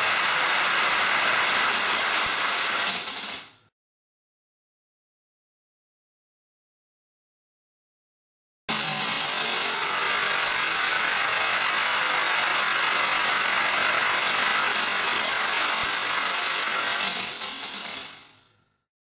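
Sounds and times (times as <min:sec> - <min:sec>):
dominoes toppling clatter: 0:00.3 - 0:03.5.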